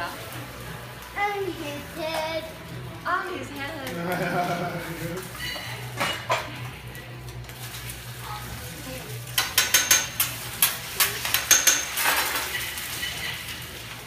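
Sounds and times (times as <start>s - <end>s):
frying sizzle: 0.0s - 14.0s
metal spatula clacking on griddle: 9.3s - 13.6s.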